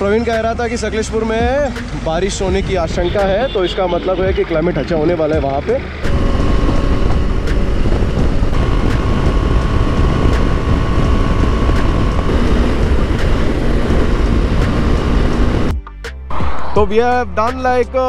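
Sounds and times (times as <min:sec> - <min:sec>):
motorcycle engine droning: 0:05.4 - 0:15.7
wind rushing on microphone: 0:06.1 - 0:15.7.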